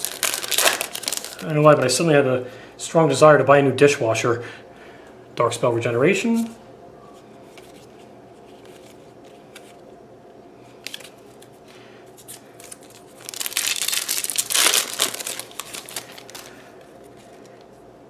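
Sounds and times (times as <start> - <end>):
foil wrapper crinkling and tearing: 0.0 - 1.9, 12.2 - 17.6.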